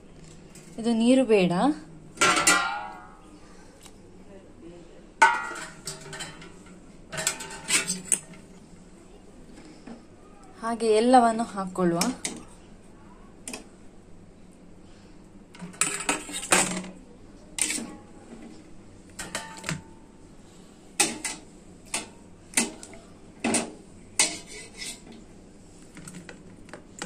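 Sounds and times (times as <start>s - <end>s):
steel pot and plate clattering: 2.2s - 3.1s, 5.2s - 8.3s, 19.2s - 19.8s.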